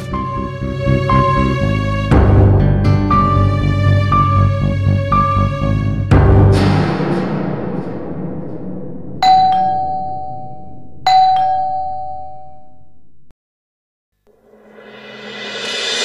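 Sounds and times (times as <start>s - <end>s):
loud musical hit: 0.0s - 9.7s, 14.4s - 16.0s
two-note doorbell chime: 9.2s - 12.6s.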